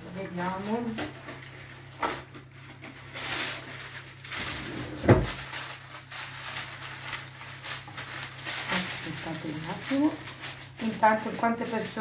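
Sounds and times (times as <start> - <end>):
baking paper crinkling: 0.0 - 12.0
kitchen drawer clatter: 4.4 - 5.5
heavy thump: 4.9 - 5.4.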